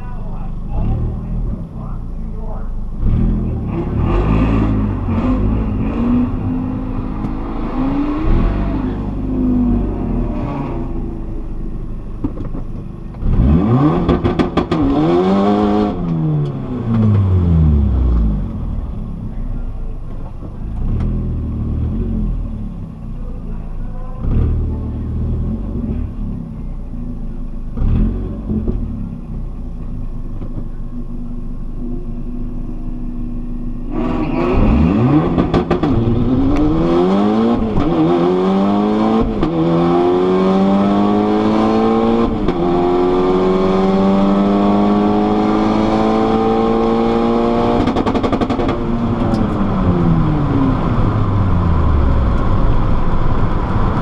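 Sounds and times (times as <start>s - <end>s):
car engine revving from inside: 3.0s - 11.1s, 13.2s - 18.8s, 33.8s - 54.0s.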